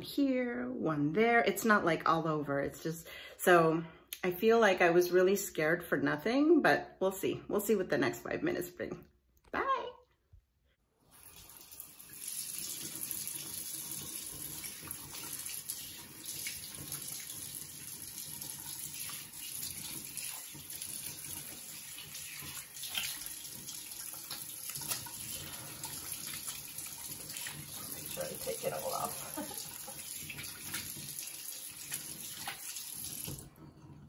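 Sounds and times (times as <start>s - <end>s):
water running into sink: 11.1s - 34.0s
water splashing on face: 11.2s - 33.5s.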